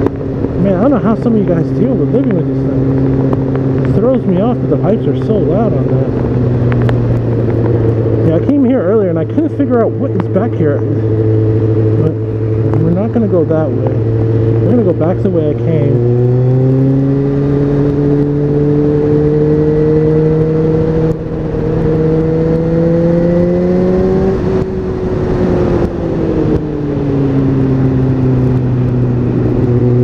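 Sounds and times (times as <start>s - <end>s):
motorcycle engine cruising: 0.0s - 30.0s
wind and road noise: 0.0s - 30.0s.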